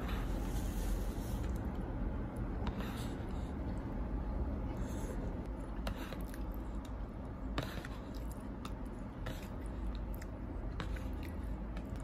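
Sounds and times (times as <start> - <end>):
low steady hum: 0.0 - 12.0
chewing noodle soup: 6.2 - 12.0.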